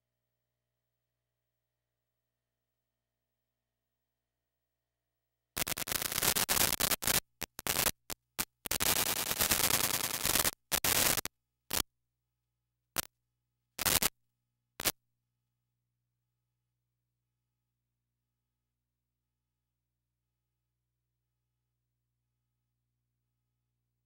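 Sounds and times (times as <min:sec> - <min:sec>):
harsh static hiss bursts: 0:05.6 - 0:11.8, 0:13.8 - 0:14.1.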